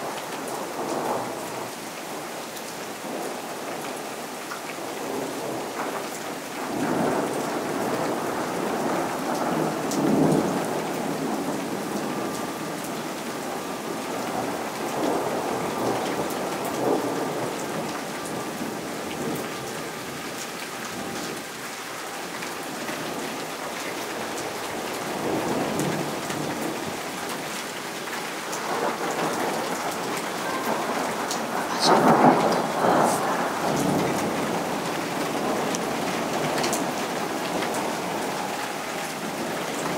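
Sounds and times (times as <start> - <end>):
steady rain: 0.0 - 39.9
thunder rumbling: 28.6 - 38.6.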